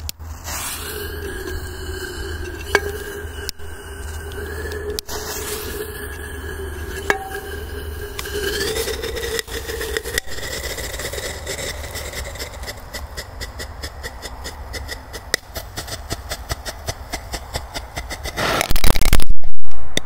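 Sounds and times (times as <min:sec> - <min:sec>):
firecrackers popping in tin can: 0:18.2 - 0:20.0
loud blast: 0:18.4 - 0:20.0.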